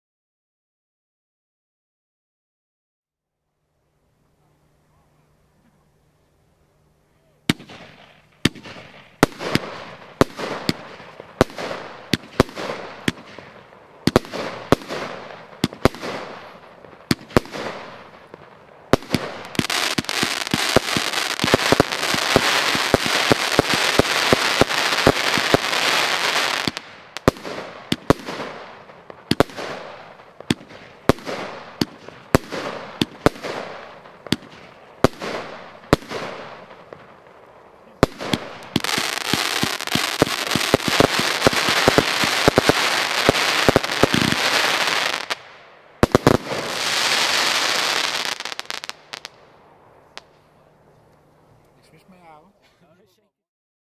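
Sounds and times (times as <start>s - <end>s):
firework crackling: 7.1s - 50.7s
firework bangs: 7.5s - 50.4s.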